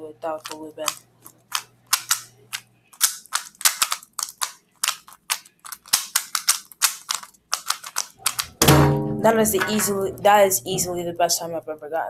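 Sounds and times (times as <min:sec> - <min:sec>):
puzzle cube plastic clacks: 0:00.4 - 0:08.7.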